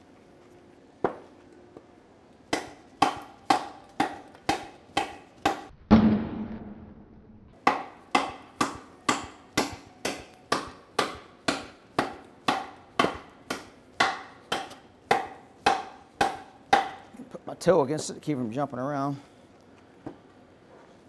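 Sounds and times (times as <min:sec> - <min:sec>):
knife chopping into wood: 0:02.5 - 0:05.7, 0:07.7 - 0:17.0.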